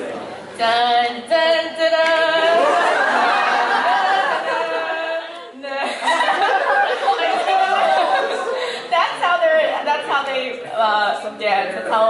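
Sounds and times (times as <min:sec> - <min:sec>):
mix of voices singing: 0:00.0 - 0:08.6.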